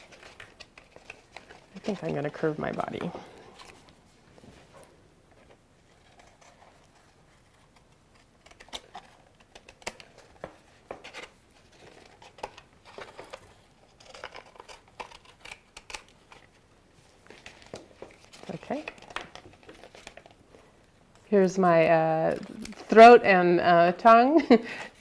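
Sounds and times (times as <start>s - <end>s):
scissors snipping paper: 11.9s - 16.5s.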